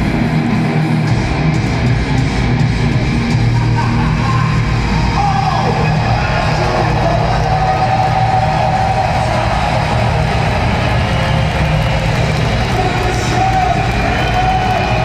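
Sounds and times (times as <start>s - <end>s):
heavy metal band playing live: 0.0s - 15.0s.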